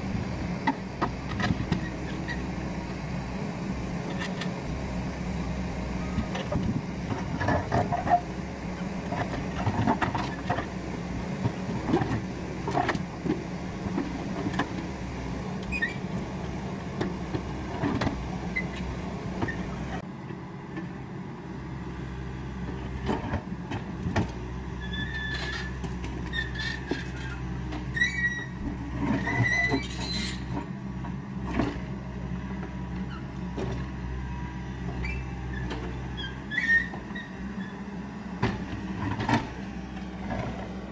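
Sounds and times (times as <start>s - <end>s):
excavator diesel engine running: 0.0s - 40.9s
short high squeaks: 29.2s - 30.5s.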